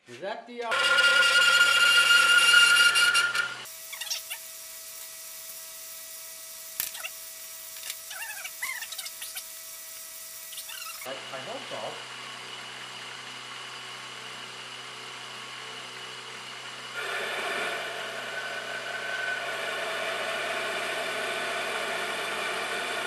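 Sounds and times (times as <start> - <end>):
lathe humming: 0.7 - 3.9, 11.1 - 23.0
boring bar cutting metal: 0.7 - 4.4, 17.0 - 23.0.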